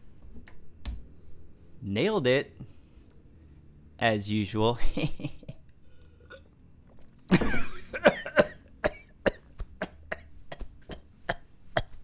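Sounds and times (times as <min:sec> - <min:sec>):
man coughing: 0:07.3 - 0:12.0.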